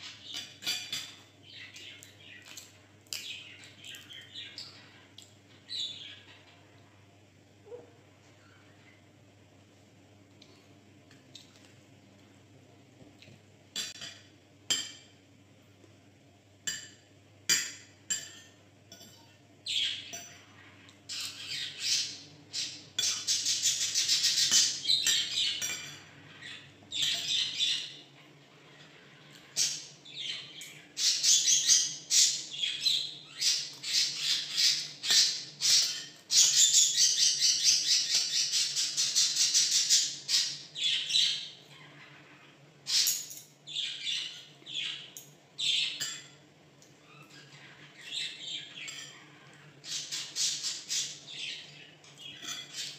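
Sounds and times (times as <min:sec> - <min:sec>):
bird chirping and squawking: 0:19.6 - 0:28.0, 0:28.6 - 0:46.1, 0:47.0 - 0:52.9.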